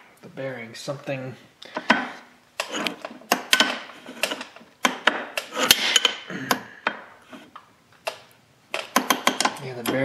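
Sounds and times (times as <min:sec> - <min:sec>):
metal knocks and clunks: 0:08.8 - 0:10.0.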